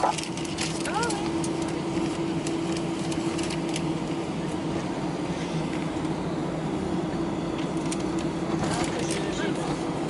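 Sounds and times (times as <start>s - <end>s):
cabin air system hum: 0.0s - 10.0s
jet engines idling: 0.0s - 10.0s.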